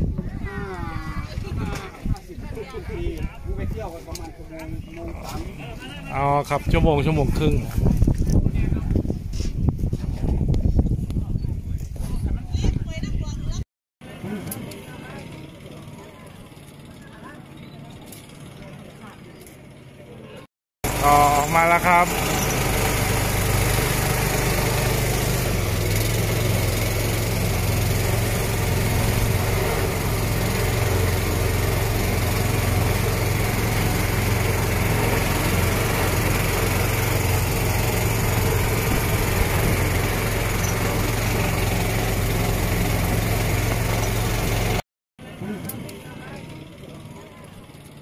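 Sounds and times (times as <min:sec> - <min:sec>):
boat engine hum: 0:14.0 - 0:48.0.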